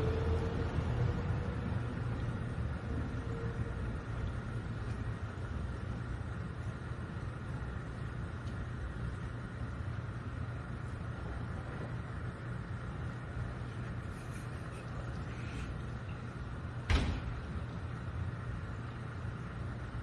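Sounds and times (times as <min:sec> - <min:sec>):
faint constant whine: 0:00.0 - 0:20.0
low engine rumble: 0:00.0 - 0:20.0.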